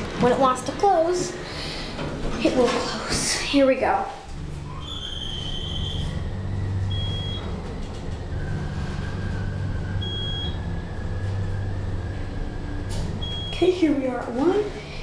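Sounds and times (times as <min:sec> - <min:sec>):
elevator pump motor humming: 0:04.3 - 0:15.0
motor whine: 0:04.4 - 0:13.7
high beeps: 0:06.9 - 0:07.5, 0:10.0 - 0:10.6, 0:13.2 - 0:13.6.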